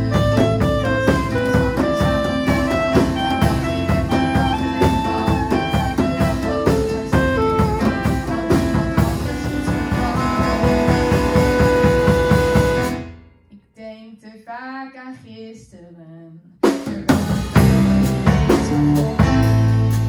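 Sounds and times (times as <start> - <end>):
drum kit beat: 0.0 - 13.2, 16.6 - 20.0
saxophone: 0.0 - 13.2
electric guitar: 0.0 - 13.3, 16.9 - 20.0
keyboard: 0.0 - 13.4.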